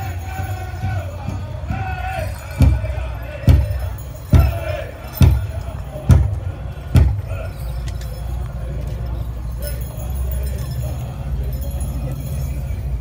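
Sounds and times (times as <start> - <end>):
big drum beats: 0.0 - 7.4
crowd murmuring: 0.0 - 13.0.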